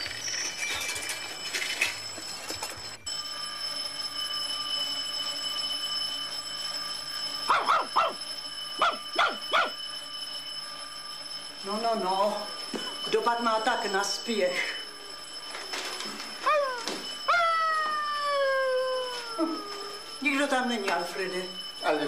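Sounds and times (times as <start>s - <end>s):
dog barking: 7.5s - 8.2s, 8.8s - 9.7s.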